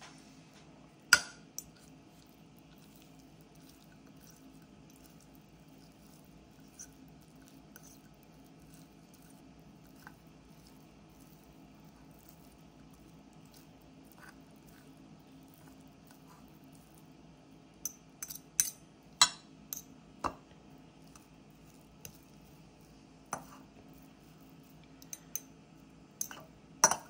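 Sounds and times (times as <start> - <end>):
forks clinking against ceramic bowl: 17.9 - 19.9, 26.2 - 27.0.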